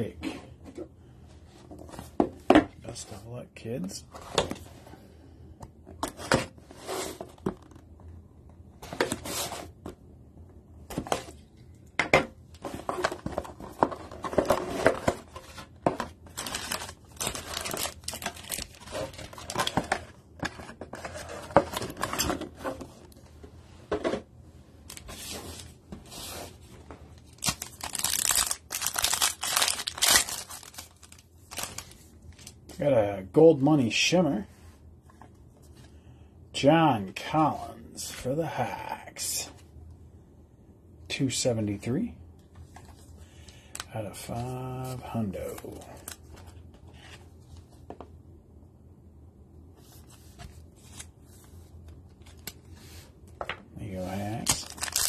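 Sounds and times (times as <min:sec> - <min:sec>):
foil pack crinkling and tearing: 0:16.3 - 0:19.8, 0:27.2 - 0:32.0, 0:54.2 - 0:55.0.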